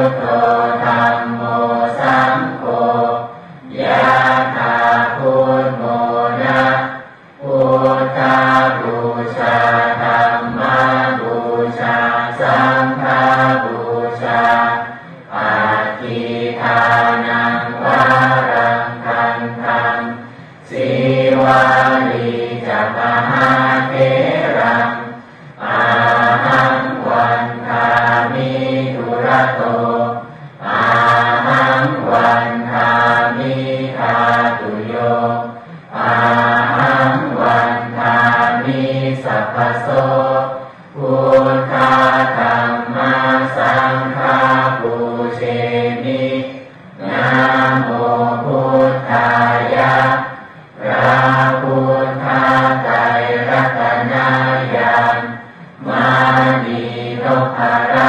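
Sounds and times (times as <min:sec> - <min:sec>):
person chanting: 0:00.0 - 0:58.0.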